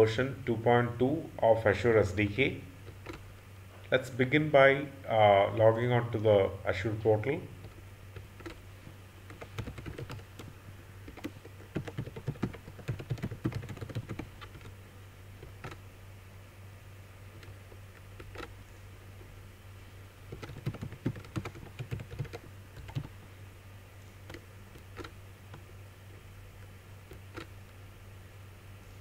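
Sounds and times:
low steady hum: 0:00.0 - 0:29.0
typing on keyboard: 0:07.6 - 0:08.6, 0:09.3 - 0:10.5, 0:11.1 - 0:14.7, 0:18.2 - 0:18.5, 0:20.3 - 0:23.2, 0:24.3 - 0:25.7.

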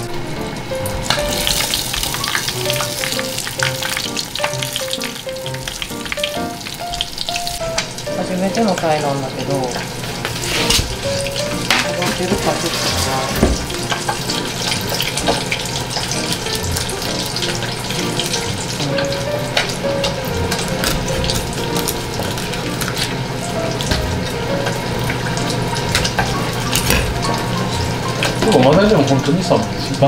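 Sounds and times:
knife filleting fish: 0:10.3 - 0:11.0.

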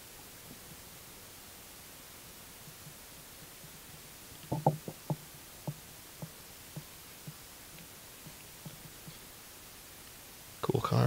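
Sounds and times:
trading cards tapping: 0:04.4 - 0:09.2.

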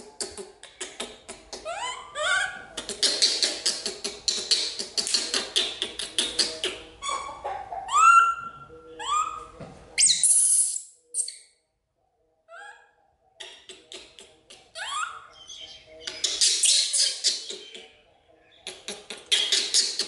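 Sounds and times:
baby monkey squeaking and squealing: 0:01.6 - 0:05.5, 0:06.3 - 0:11.3, 0:12.5 - 0:12.9, 0:14.8 - 0:15.5, 0:16.2 - 0:17.7.

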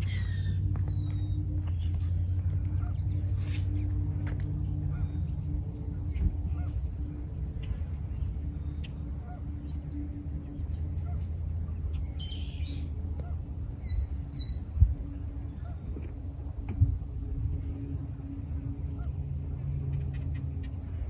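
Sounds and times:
bird calling: 0:00.0 - 0:16.5
wind on microphone: 0:00.0 - 0:19.9.

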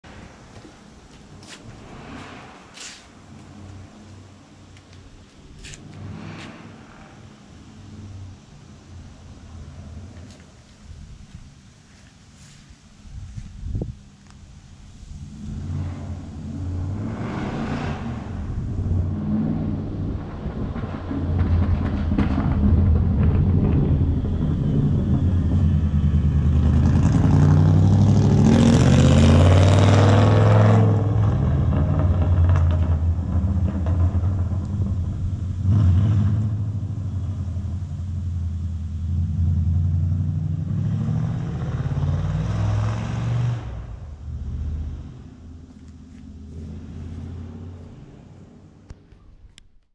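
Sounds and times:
rally car engine revving: 0:15.2 - 0:49.0.

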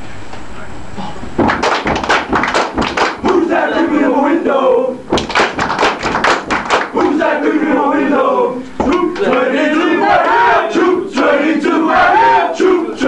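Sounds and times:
hand claps: 0:01.4 - 0:03.4, 0:05.1 - 0:07.2
group chanting and shouting: 0:01.7 - 0:13.0.

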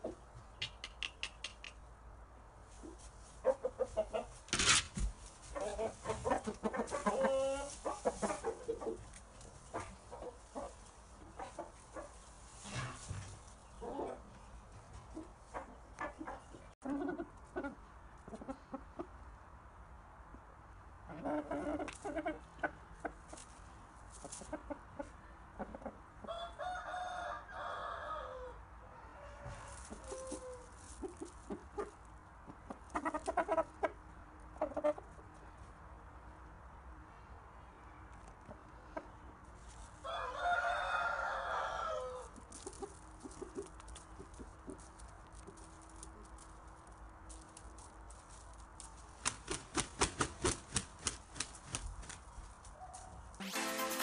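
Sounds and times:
rooster clucking: 0:00.0 - 0:01.8, 0:05.5 - 0:09.0
sharp clicks: 0:00.6 - 0:01.8
rooster long pitched call: 0:40.1 - 0:42.2.

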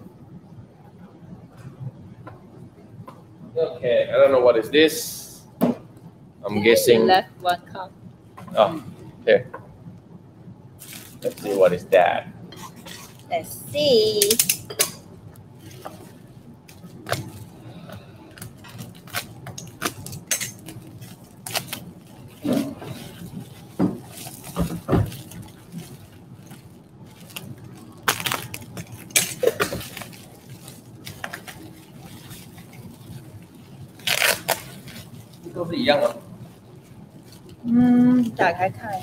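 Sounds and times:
bubble wrap crackling and rustling: 0:10.8 - 0:12.1, 0:15.5 - 0:17.7, 0:18.3 - 0:39.0.

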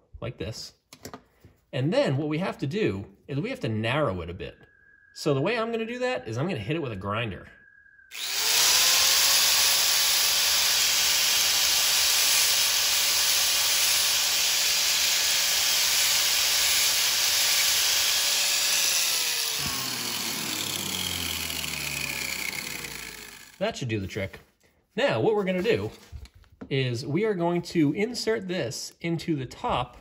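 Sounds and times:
grinder motor humming: 0:08.1 - 0:23.6.

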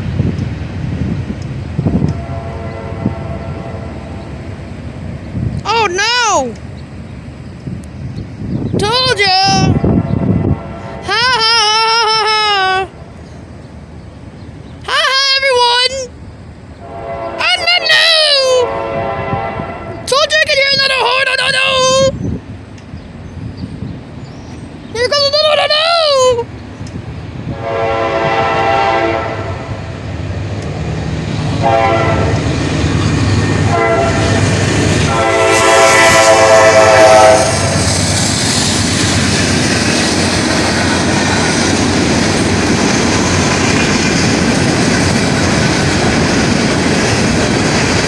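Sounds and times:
locomotive air horn blasts: 0:02.1 - 0:04.4, 0:09.7 - 0:11.2, 0:16.8 - 0:17.8, 0:18.4 - 0:20.1, 0:27.5 - 0:29.8, 0:31.6 - 0:32.4, 0:33.7 - 0:34.5, 0:35.1 - 0:37.9
train wheels clattering: 0:37.5 - 0:48.0.

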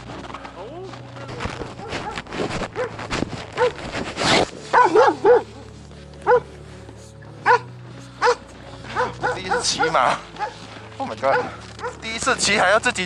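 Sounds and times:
handling rustle: 0:00.0 - 0:13.0
dog yelping barks: 0:01.8 - 0:02.2, 0:03.6 - 0:03.8, 0:04.7 - 0:05.5, 0:06.2 - 0:06.5, 0:07.4 - 0:10.6, 0:11.3 - 0:12.0.

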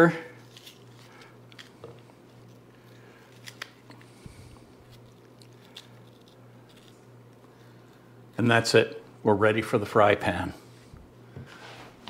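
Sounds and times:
steady low hum: 0:00.0 - 0:12.0
onion layers snapping apart: 0:03.3 - 0:03.9.

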